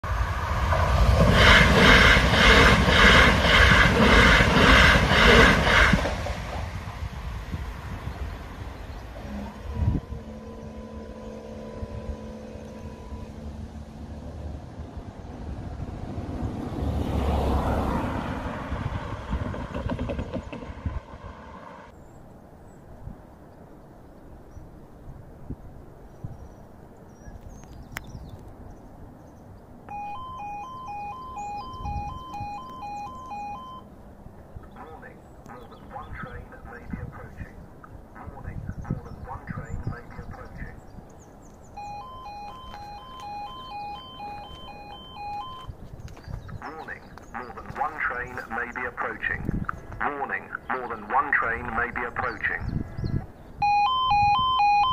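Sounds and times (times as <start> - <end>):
wind rumble on microphone: 0.0 - 21.6, 22.6 - 29.7, 31.3 - 33.5, 35.6 - 50.1, 51.7 - 54.9
outdoor background noise: 0.0 - 54.9
two-tone crossing alarm: 29.9 - 34.0, 41.8 - 45.8, 53.6 - 54.9.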